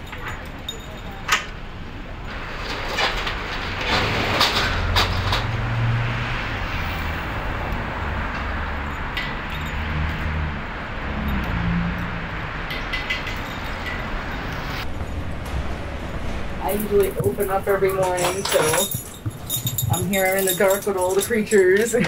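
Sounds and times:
street traffic rumble: 0.0 - 22.0
metal security gate rattling: 2.2 - 5.8, 12.6 - 14.4, 15.0 - 22.0.

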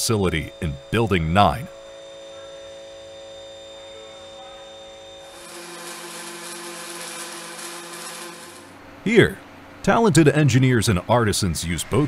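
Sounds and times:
electrical hum: 0.0 - 12.0
welding arc hissing: 5.3 - 8.8.

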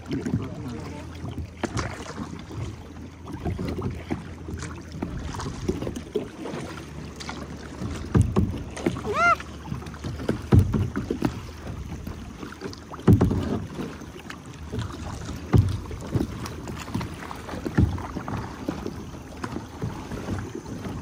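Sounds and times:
paddle splashing in water: 0.0 - 21.0
water and wind noise: 0.0 - 21.0.

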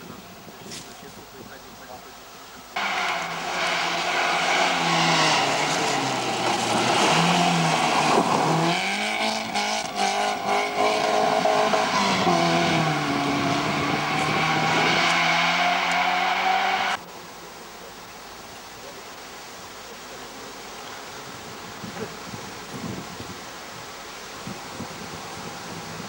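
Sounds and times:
engine crackles: 2.7 - 17.0
rally car engine revving: 2.8 - 17.0.

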